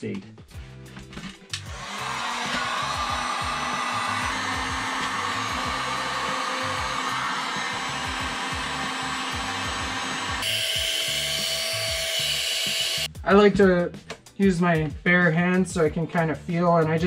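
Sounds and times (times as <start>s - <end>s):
heat gun blowing air: 1.7s - 13.1s.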